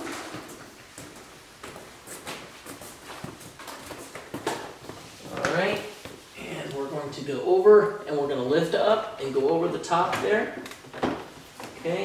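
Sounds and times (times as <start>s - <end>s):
footsteps on plastic floor tiles: 0.0s - 6.3s.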